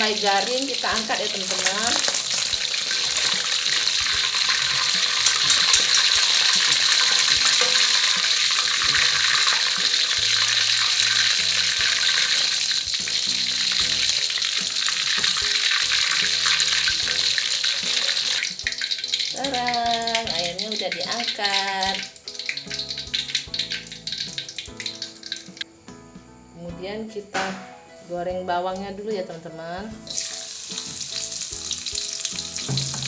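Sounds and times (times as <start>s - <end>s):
chicken sizzling in hot oil: 0.0s - 25.7s, 30.0s - 33.0s.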